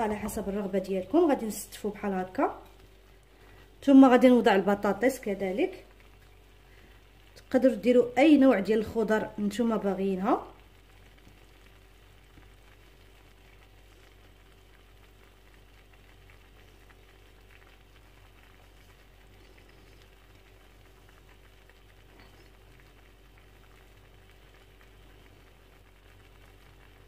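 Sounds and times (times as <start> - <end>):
food sizzling and bubbling in oil: 0.0 - 27.0.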